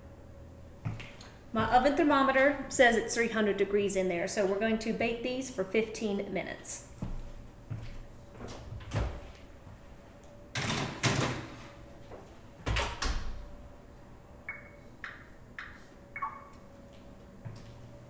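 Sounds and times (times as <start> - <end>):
short high oven beeps: 14.5 - 15.0, 16.1 - 16.6.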